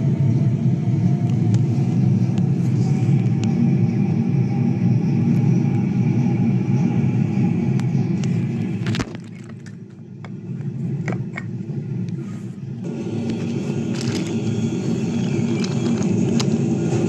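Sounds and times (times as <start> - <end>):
toy train rolling on wooden track: 13.2 - 16.6.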